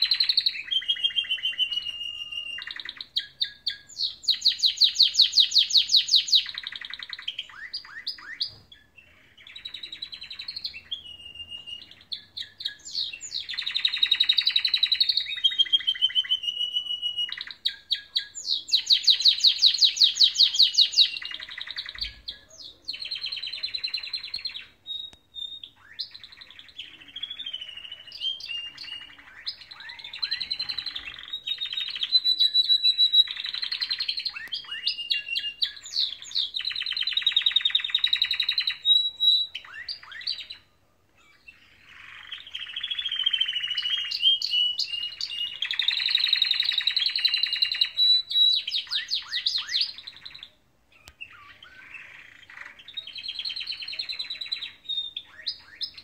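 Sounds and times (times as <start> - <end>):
canaries singing trills: 0.0 - 56.0.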